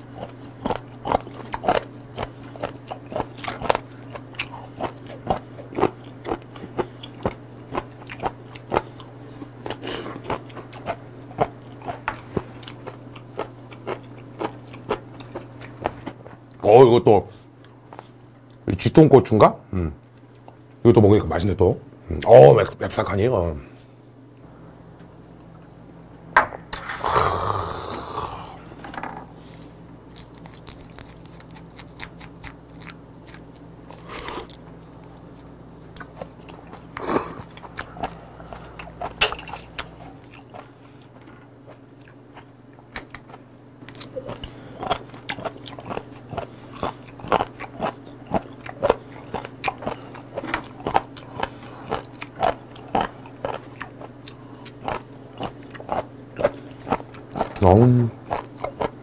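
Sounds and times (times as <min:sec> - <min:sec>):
chewing shellfish: 0:00.0 - 0:16.7, 0:29.4 - 0:59.0
noisy breath: 0:26.8 - 0:29.8, 0:51.4 - 0:51.9.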